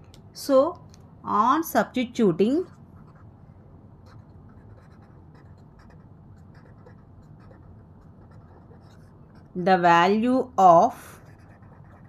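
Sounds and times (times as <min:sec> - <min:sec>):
marker pen scratching on paper: 0:02.5 - 0:03.3, 0:04.0 - 0:09.7, 0:11.0 - 0:12.0.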